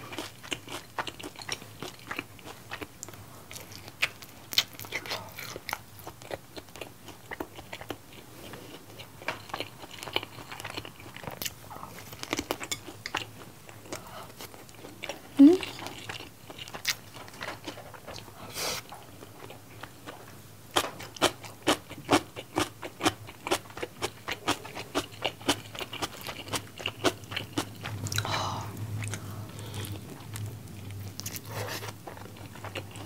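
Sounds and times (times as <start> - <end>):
close chewing with wet mouth clicks: 0.1 - 18.3, 21.2 - 28.3.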